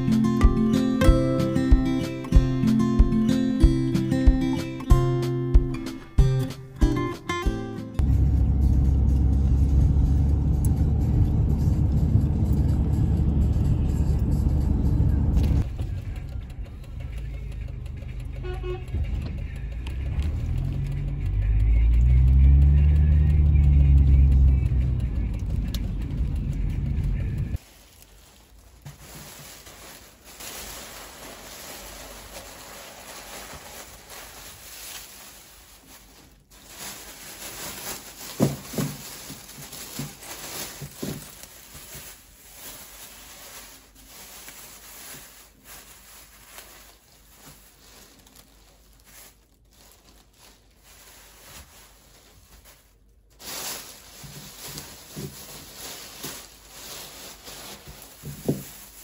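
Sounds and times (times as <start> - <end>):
plastic bags rustling: 27.6 - 59.0.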